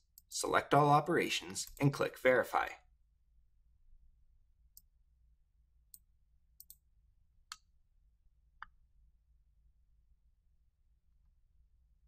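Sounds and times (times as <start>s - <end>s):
computer mouse clicks: 5.9s - 6.8s.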